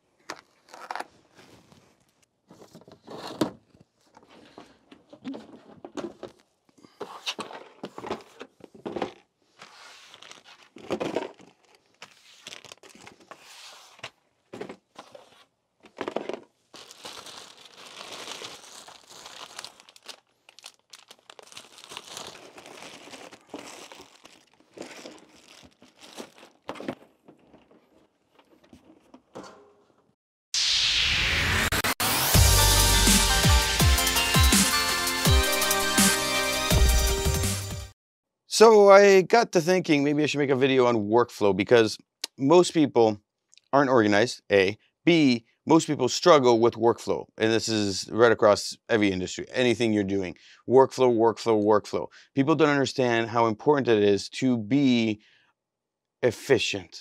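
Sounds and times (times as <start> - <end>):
plastic packaging crinkling and tearing: 9.8 - 13.3, 16.7 - 29.0.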